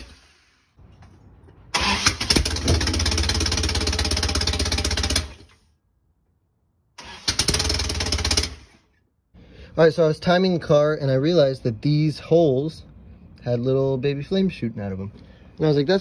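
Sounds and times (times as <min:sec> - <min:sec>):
engine cranking by starter: 0:01.7 - 0:05.6, 0:07.0 - 0:09.0.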